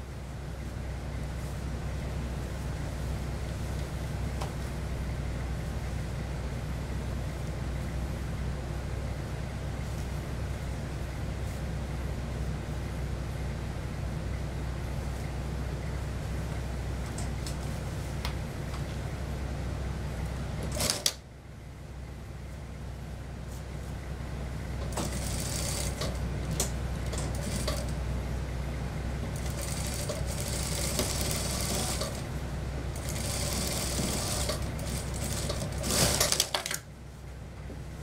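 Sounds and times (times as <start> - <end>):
low machine hum: 0.0 - 38.0
sewing machine stitching: 20.7 - 21.2, 24.9 - 26.2, 27.2 - 27.9, 29.4 - 32.2, 33.0 - 36.8.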